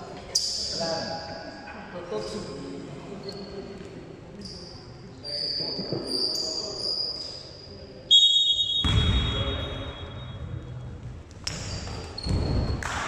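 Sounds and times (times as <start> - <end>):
basketball bouncing on court: 8.8 - 9.5, 11.0 - 13.0
shoes squeaking: 11.5 - 12.8.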